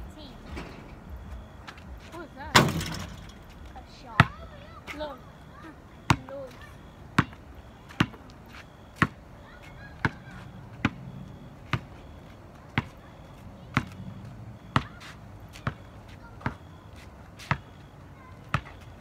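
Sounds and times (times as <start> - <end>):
basketball bouncing on asphalt: 1.1 - 19.0.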